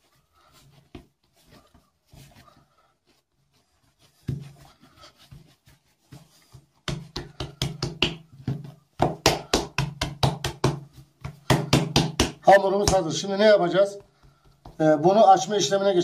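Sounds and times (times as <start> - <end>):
hands patting dough on table: 4.0 - 15.8.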